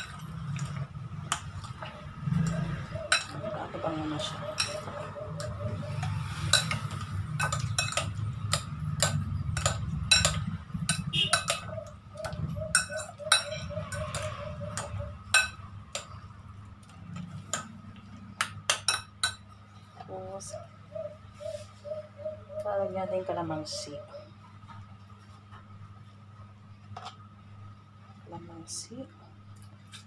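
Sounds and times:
low steady hum: 0:00.0 - 0:30.0
fork clinking against glass bowl: 0:02.4 - 0:03.4, 0:04.5 - 0:11.7, 0:12.7 - 0:16.1.

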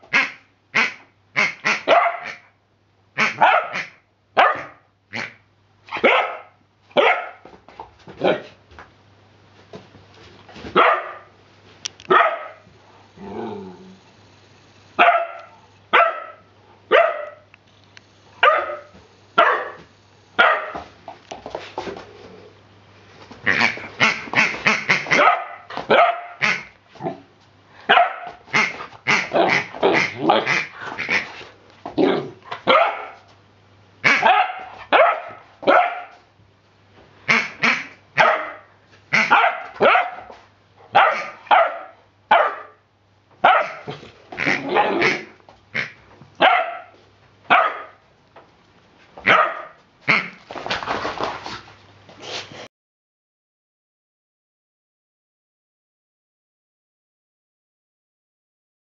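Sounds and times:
puppy barking: 0:01.5 - 0:02.6, 0:03.2 - 0:07.5, 0:10.7 - 0:11.4, 0:12.1 - 0:12.7, 0:15.0 - 0:17.5, 0:18.4 - 0:20.9, 0:23.5 - 0:26.7, 0:27.9 - 0:31.2, 0:32.6 - 0:33.3, 0:34.0 - 0:36.2, 0:37.6 - 0:42.8, 0:43.4 - 0:48.0, 0:49.2 - 0:50.3.

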